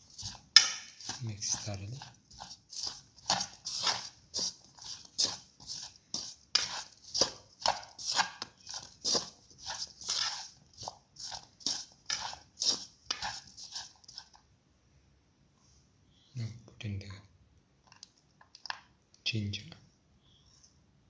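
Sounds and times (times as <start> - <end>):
spoon stirring in a bowl: 0.0 - 14.5.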